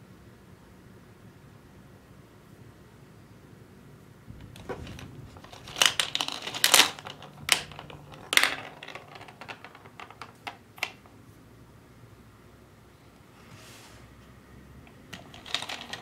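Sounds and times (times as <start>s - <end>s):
gumball clattering down ramp: 4.3s - 11.1s, 14.9s - 16.0s.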